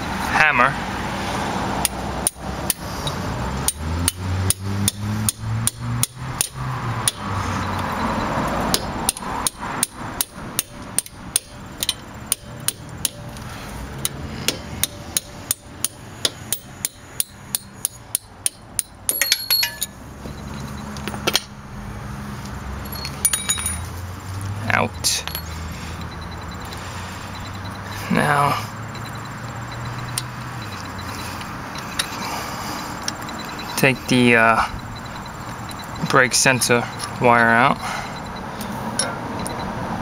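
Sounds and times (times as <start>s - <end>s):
hammer tapping steel punch: 3.6s - 7.3s, 8.7s - 13.4s, 14.0s - 19.9s
metallic ringing clink: 14.5s - 21.6s, 22.8s - 24.0s, 25.1s - 25.6s, 39.0s - 39.6s.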